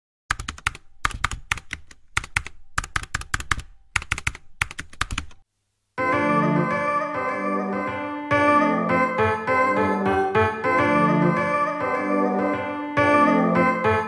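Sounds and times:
keyboard typing clicks: 0:00.3 - 0:05.4
music: 0:06.0 - 0:14.0.

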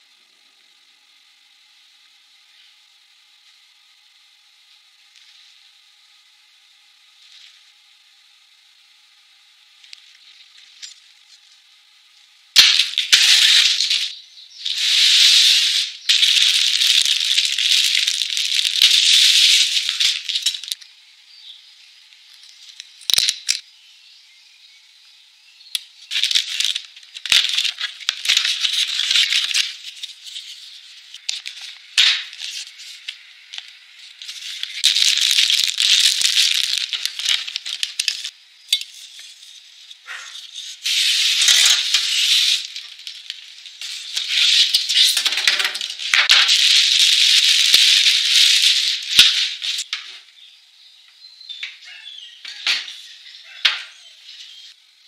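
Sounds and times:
plastic wrap crinkling: 0:14.7 - 0:20.8, 0:26.1 - 0:49.9.

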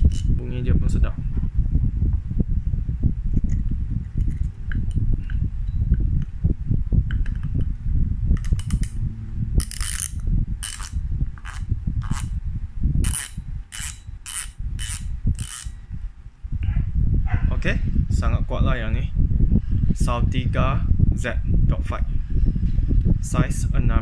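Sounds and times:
fishing reel gears whirring: 0:09.6 - 0:12.3, 0:13.0 - 0:15.8.

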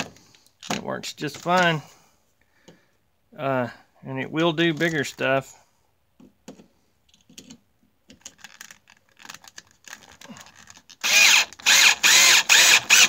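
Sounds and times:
drill stuttering rattle: 0:11.0 - 0:13.0.

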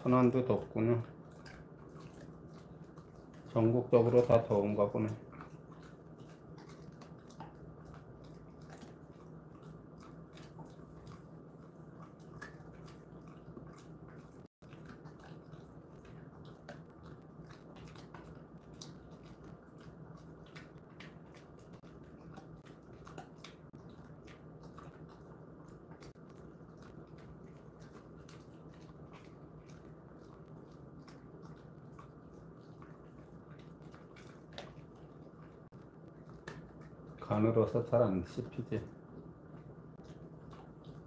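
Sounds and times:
dog chewing a treat: 0:00.0 - 0:41.0
steady low hum: 0:00.0 - 0:41.0.

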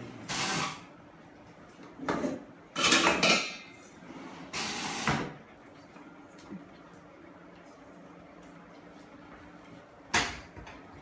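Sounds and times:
pots and pans clattering: 0:02.0 - 0:03.8.

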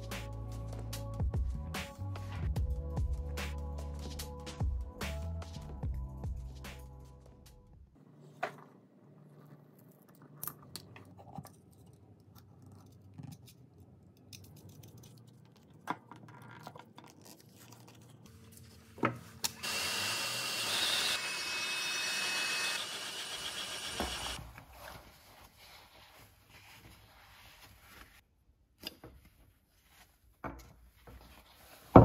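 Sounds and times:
power tool whining: 0:19.6 - 0:24.4.

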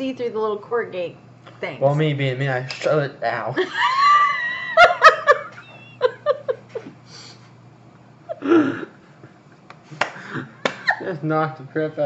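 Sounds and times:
people laughing: 0:03.6 - 0:07.0, 0:10.0 - 0:11.2.

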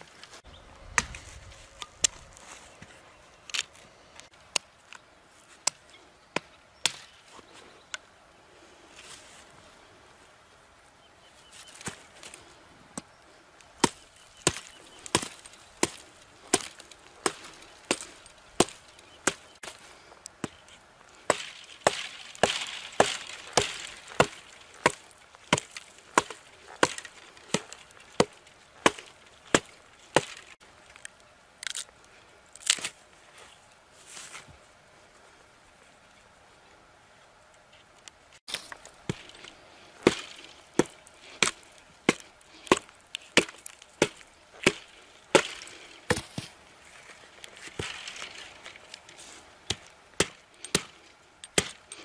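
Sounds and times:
wood splitting: 0:13.8 - 0:31.9, 0:32.6 - 0:33.0, 0:38.5 - 0:52.0.

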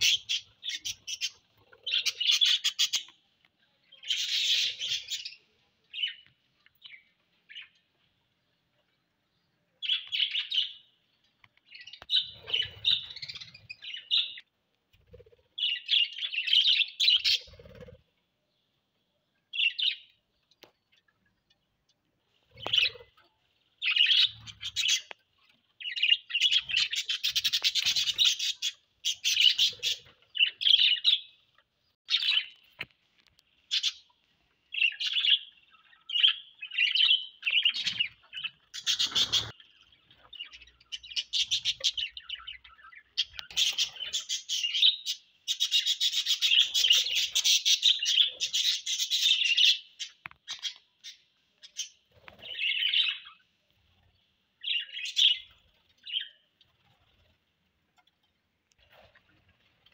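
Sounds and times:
budgerigars chattering and chirping: 0:00.0 - 0:03.1, 0:04.0 - 0:05.4, 0:34.7 - 0:53.4.

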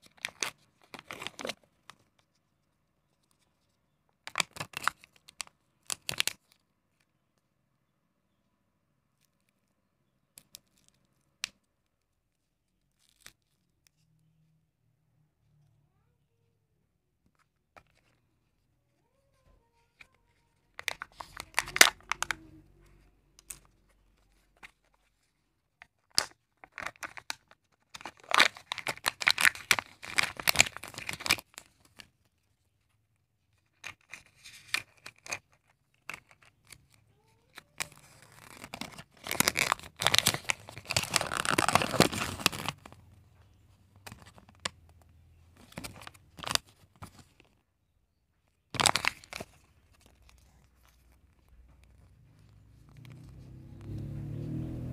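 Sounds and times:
foil plastic and paper crinkling: 0:20.8 - 0:22.4, 0:26.0 - 0:32.0, 0:37.4 - 0:43.0, 0:48.8 - 0:52.1.

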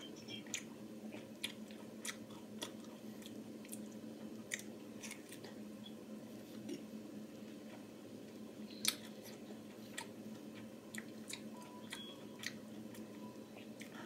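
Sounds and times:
person chewing pineapple: 0:00.0 - 0:05.6, 0:08.7 - 0:14.0.

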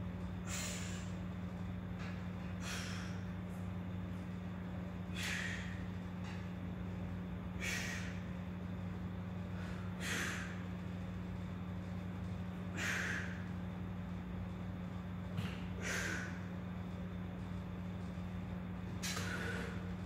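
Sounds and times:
steady low hum: 0:00.0 - 0:20.0
man breathing hard: 0:00.4 - 0:01.2, 0:02.6 - 0:03.4, 0:05.0 - 0:05.9, 0:07.6 - 0:08.2, 0:09.4 - 0:10.7, 0:12.7 - 0:13.6, 0:15.4 - 0:16.5, 0:19.0 - 0:19.9.

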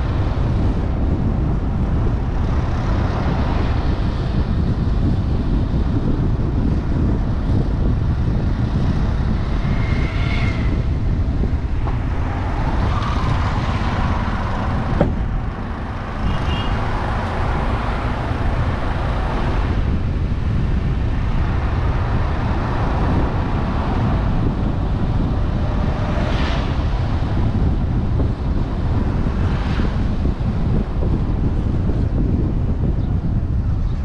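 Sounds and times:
car road noise rumble: 0:00.0 - 0:34.0
wind on the microphone: 0:00.0 - 0:34.0.

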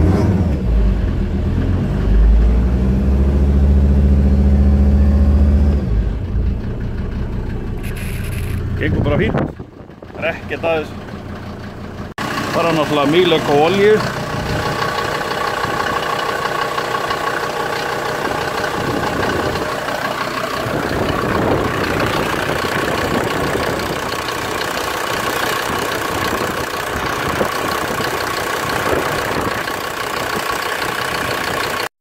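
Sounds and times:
diesel engine idling: 0:00.7 - 0:31.9.

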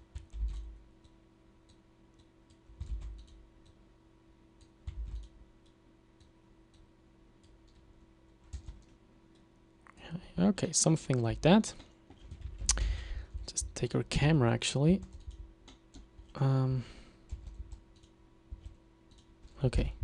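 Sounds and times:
faint steady hum: 0:00.0 - 0:20.0
keyboard keystrokes and clicks: 0:00.1 - 0:03.8, 0:04.6 - 0:09.5, 0:15.0 - 0:16.4, 0:17.3 - 0:19.9.

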